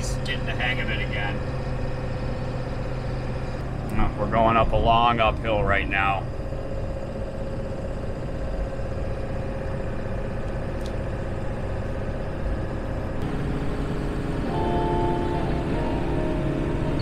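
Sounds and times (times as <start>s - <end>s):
truck engine drone: 0.0s - 17.0s
road rumble: 12.7s - 17.0s
steady tone: 13.2s - 17.0s
music: 14.4s - 17.0s.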